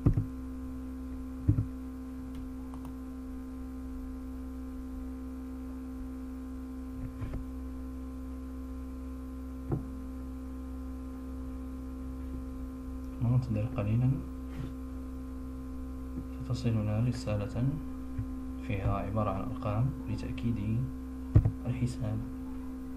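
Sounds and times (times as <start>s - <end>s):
electrical mains hum: 0.0s - 22.9s
soft thumps: 1.5s - 1.7s, 9.6s - 9.9s, 21.4s - 21.6s.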